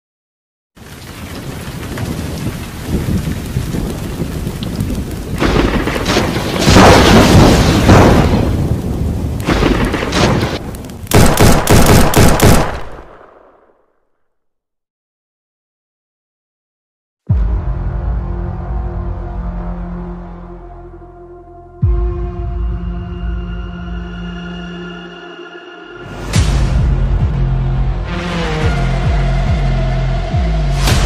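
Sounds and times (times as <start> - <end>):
heavy crashes: 5.4 - 10.7.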